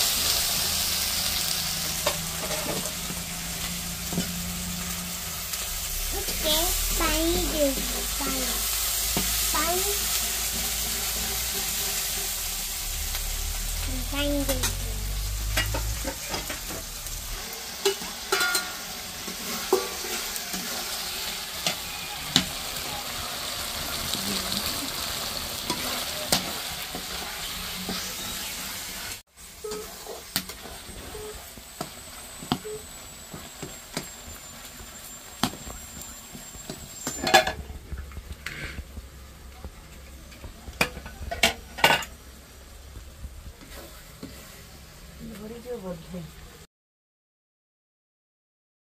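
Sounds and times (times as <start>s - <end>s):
masala sizzling in a pan: 0.0s - 46.6s
metal ladle scraping a pan: 1.6s - 22.6s, 29.6s - 34.1s.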